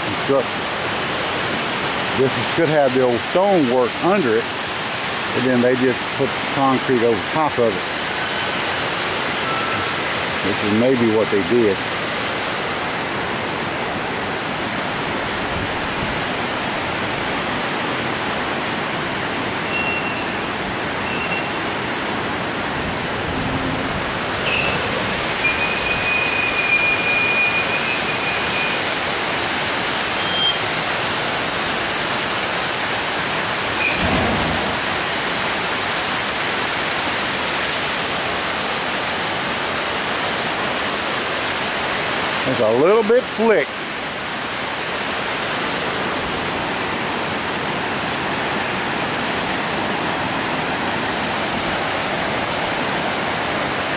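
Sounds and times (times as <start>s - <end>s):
water pouring over dam spillway: 0.0s - 53.9s.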